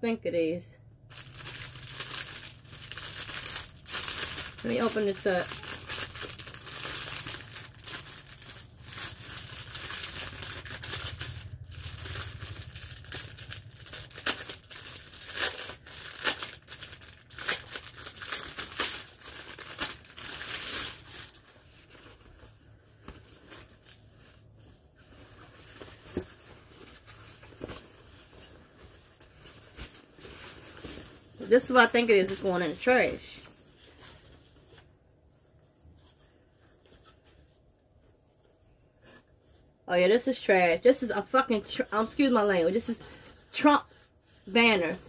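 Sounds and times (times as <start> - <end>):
plastic packaging crinkling: 1.0 - 34.8.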